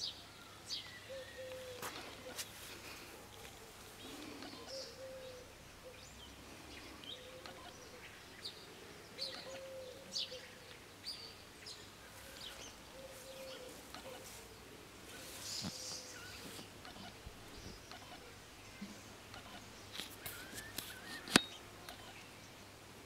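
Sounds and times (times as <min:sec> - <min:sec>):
small birds chirping: 0:00.0 - 0:22.9
low cooing call: 0:00.3 - 0:10.8, 0:12.0 - 0:22.3.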